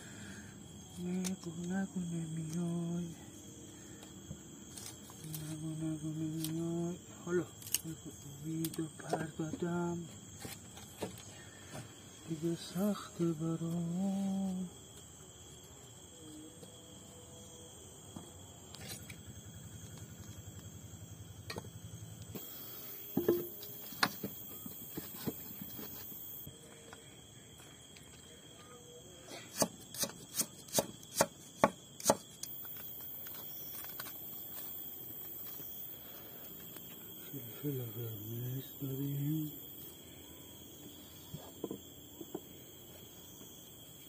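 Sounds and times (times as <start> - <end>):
knife chopping onion: 29.5 - 32.3.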